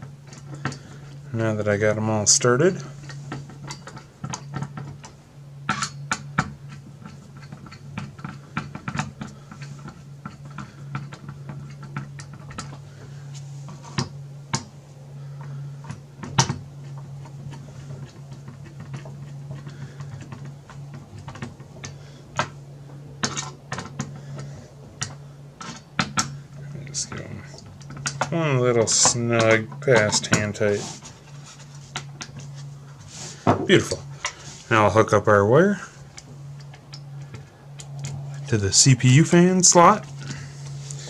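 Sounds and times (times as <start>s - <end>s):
steady low hum: 0.0s - 41.0s.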